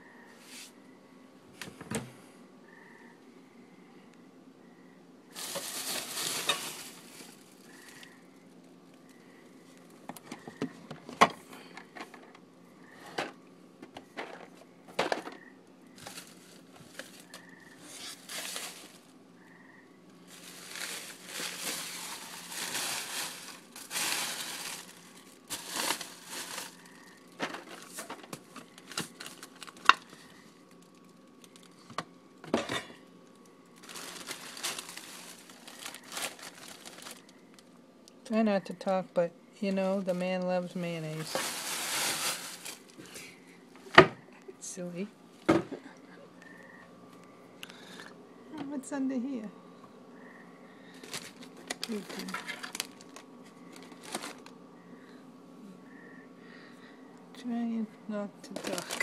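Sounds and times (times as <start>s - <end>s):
packaging crinkling: 5.4s - 8.2s, 16.0s - 19.2s, 20.2s - 31.8s, 33.2s - 37.7s, 41.2s - 43.2s, 51.0s - 54.6s, 58.5s - 59.0s.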